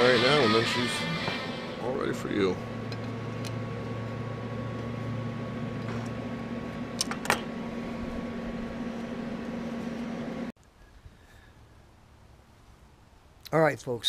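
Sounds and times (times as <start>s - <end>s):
welder electrical hum: 0.0s - 10.6s.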